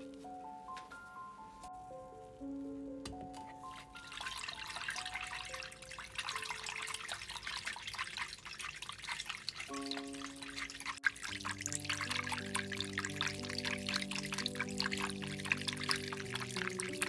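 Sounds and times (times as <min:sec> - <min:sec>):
soft background music: 0:00.0 - 0:08.3, 0:09.6 - 0:17.0
whisk splashing in liquid: 0:04.0 - 0:17.0.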